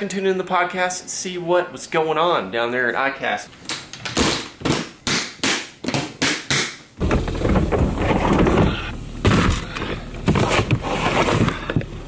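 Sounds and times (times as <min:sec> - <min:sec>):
low vehicle rumble: 0:07.0 - 0:12.0.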